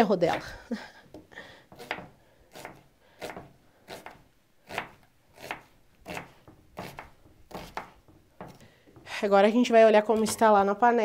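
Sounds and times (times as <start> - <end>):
knife slicing onion on board: 1.8 - 8.6.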